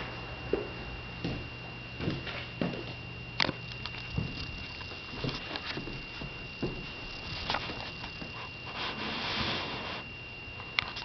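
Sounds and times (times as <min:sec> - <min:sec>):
faint high whine: 0:00.0 - 0:11.0
soft thumps and rustling: 0:04.0 - 0:08.4.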